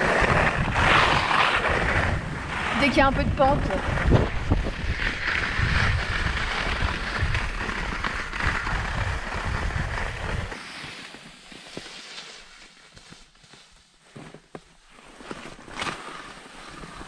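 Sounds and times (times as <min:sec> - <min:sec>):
wind rumble on microphone: 0:00.0 - 0:10.6
skis scraping over snow: 0:00.0 - 0:17.0.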